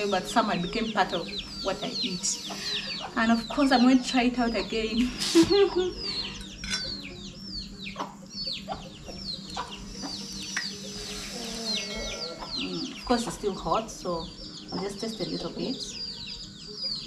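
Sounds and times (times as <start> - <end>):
chicks peeping: 0.0 - 17.0
chicken clucks: 7.8 - 10.8.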